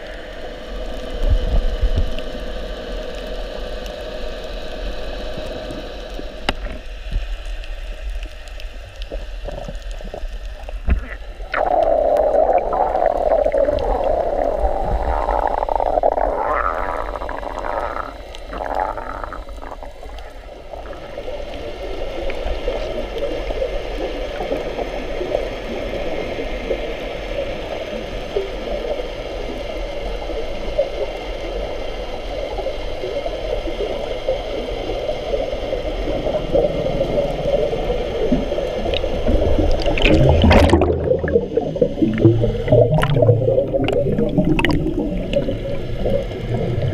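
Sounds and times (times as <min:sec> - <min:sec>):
underwater rushing and gurgling: 0:00.0 - 0:46.9
bubbling burst: 0:10.9 - 0:21.1, 0:39.3 - 0:46.9.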